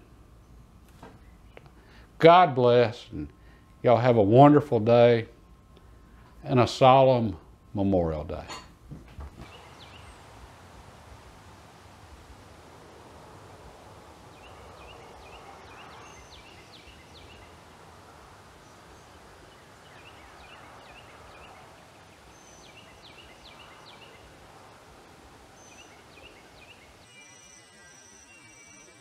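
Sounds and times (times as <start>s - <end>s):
faint outdoor background noise: 0.0s - 29.0s
songbird chirping: 9.4s - 29.0s.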